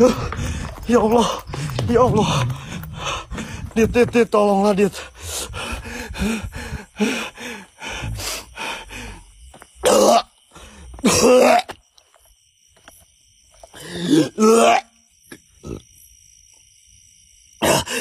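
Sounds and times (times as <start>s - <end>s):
man grunting and coughing: 9.8s - 10.4s, 11.0s - 11.8s, 13.8s - 15.0s, 17.6s - 18.0s.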